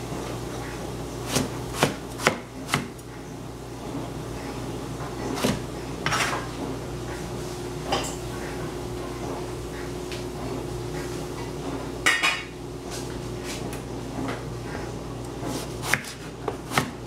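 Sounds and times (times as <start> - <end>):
knife chopping on plastic board: 1.3 - 3.0, 15.8 - 17.0.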